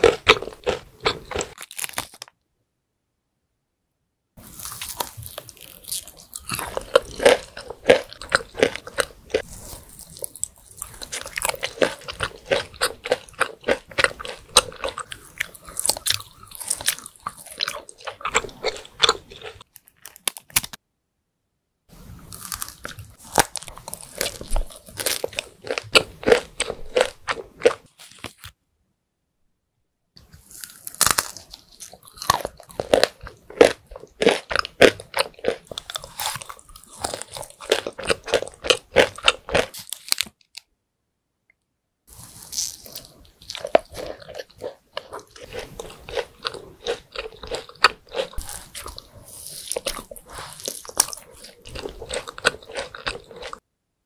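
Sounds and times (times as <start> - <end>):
biting and chewing: 0.0 - 2.2, 4.5 - 20.8, 22.3 - 28.4, 30.4 - 40.4, 42.4 - 53.6
wet mouth sounds: 42.1 - 53.6.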